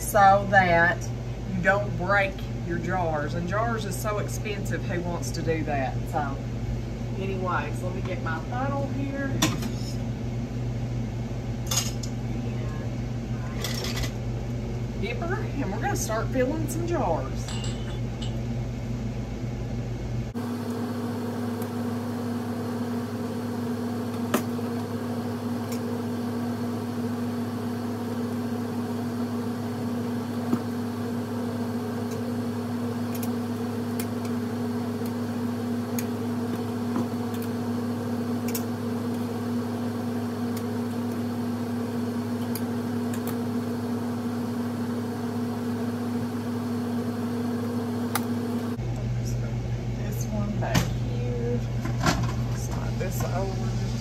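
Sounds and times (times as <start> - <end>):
machine hum: 0.0 - 54.0
ladle clinking on glass jars: 17.4 - 18.4.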